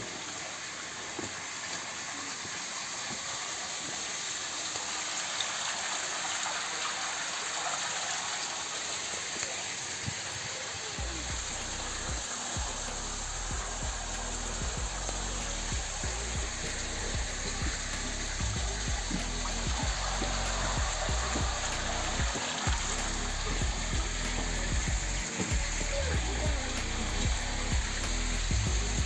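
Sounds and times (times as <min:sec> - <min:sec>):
water rushing through channel: 0:00.0 - 0:29.0
low rumble: 0:11.0 - 0:29.0.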